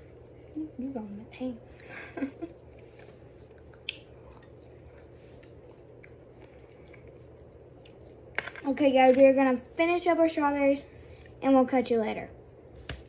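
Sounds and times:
chewing fresh fruit: 1.7 - 8.3.

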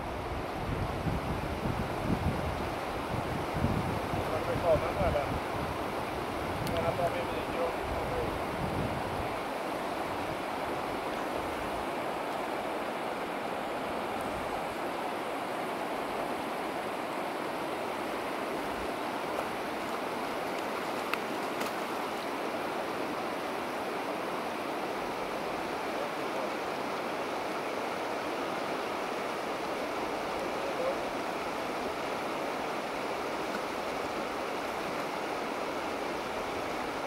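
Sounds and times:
running water rushing: 0.0 - 37.0
faint click: 6.6 - 6.9.

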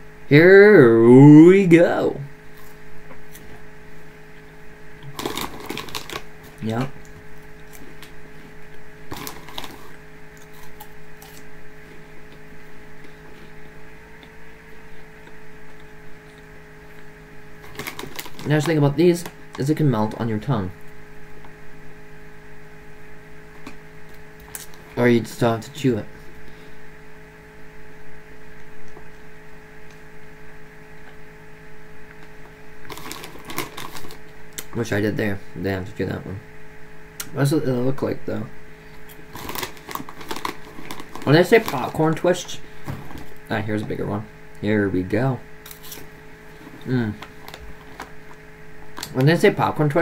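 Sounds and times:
steady hum: 0.0 - 50.0
crunchy snack eating: 5.0 - 13.6, 15.0 - 19.4, 23.6 - 25.0, 32.1 - 34.8, 38.9 - 42.2, 45.6 - 49.2.

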